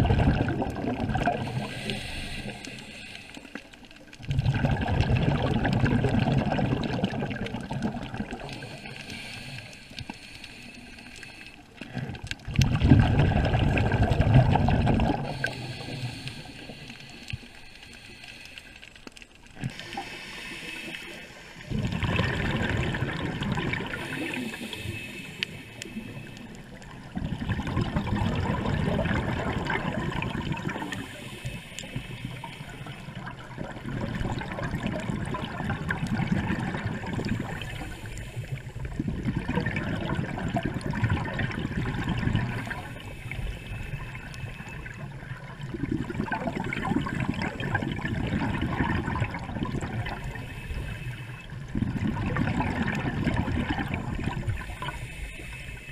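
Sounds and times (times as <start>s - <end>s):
rumbling exhaled bubbles: 0.0s - 2.7s, 4.0s - 9.0s, 11.8s - 16.5s, 19.5s - 55.9s
regulator inhale hiss: 1.4s - 4.0s, 8.4s - 11.9s, 15.2s - 21.7s, 23.8s - 26.9s, 30.6s - 33.3s, 37.3s - 38.9s, 42.1s - 45.0s, 50.0s - 51.6s, 54.4s - 55.9s.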